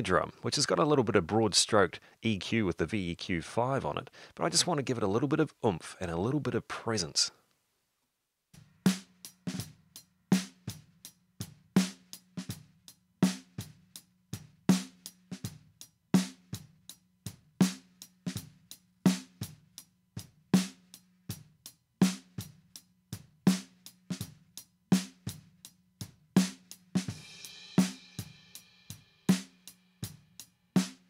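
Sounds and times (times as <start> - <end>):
snare drum groove: 8.6 - 31.0.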